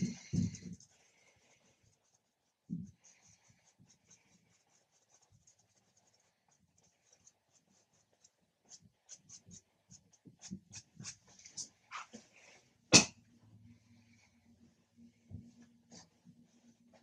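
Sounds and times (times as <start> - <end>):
paintbrush scrubbing on canvas: 0.0 - 12.4.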